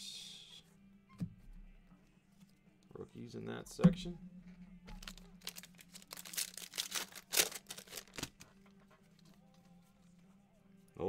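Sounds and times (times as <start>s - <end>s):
cards and wrappers crinkling: 4.9s - 8.6s.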